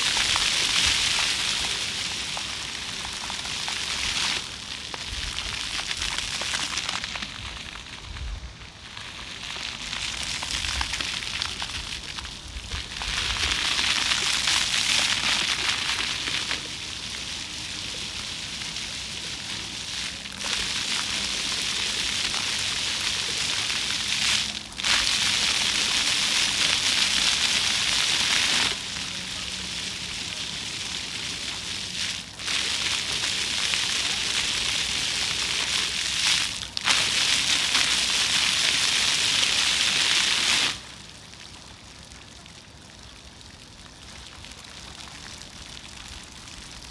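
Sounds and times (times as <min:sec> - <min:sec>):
fountain water splashing on stone: 0:00.0 - 0:46.9.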